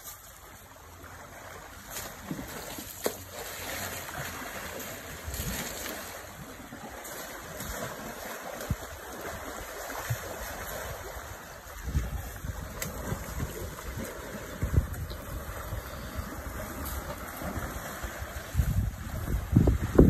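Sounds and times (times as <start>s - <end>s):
elephants splashing in water: 0.0s - 20.0s
wind buffeting microphone: 8.5s - 20.0s.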